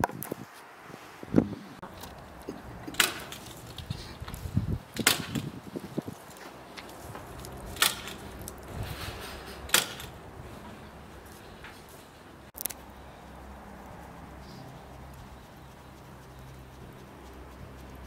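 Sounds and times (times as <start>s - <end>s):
charcoal clinking in metal grill: 2.9s - 3.7s, 7.7s - 10.2s.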